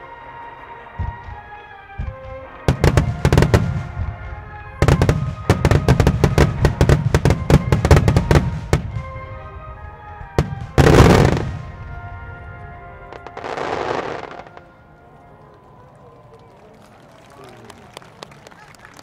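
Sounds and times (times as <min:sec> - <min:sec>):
music playing: 0:00.0 - 0:16.1
fireworks bangs: 0:01.0 - 0:14.8.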